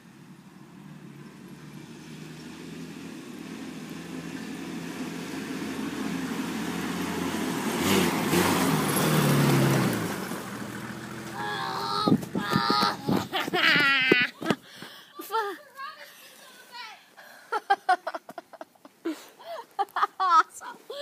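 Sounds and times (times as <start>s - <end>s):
vehicle engine driving past: 0.0s - 12.0s.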